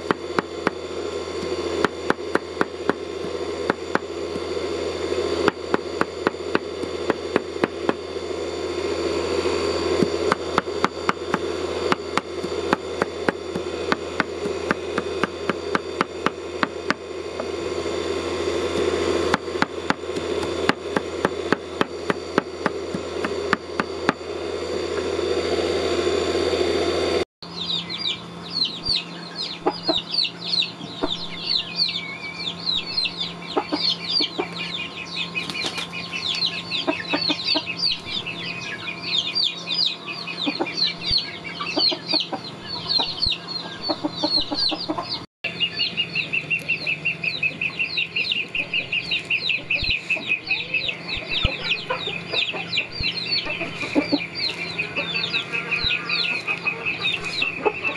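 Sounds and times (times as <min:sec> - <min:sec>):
chicks peeping: 0:27.5 - 0:57.9.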